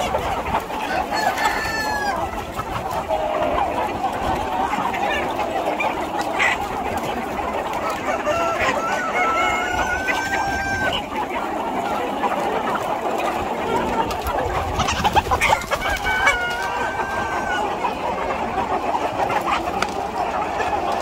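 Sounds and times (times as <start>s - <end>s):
roosters clucking: 0.0s - 21.0s
rooster crowing: 1.1s - 2.2s, 15.8s - 17.6s.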